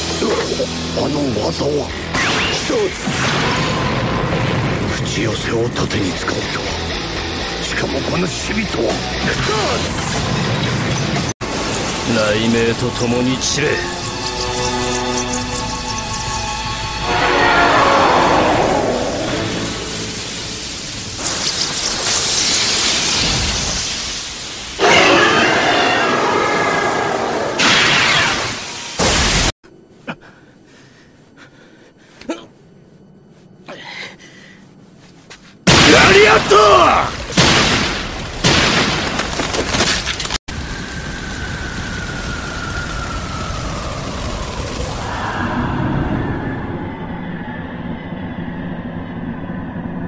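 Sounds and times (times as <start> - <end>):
hissing crackle of lightning: 8.9 - 29.6, 35.6 - 46.8
steady rushing noise: 9.5 - 24.8
crashing impacts and rumble: 37.2 - 45.0.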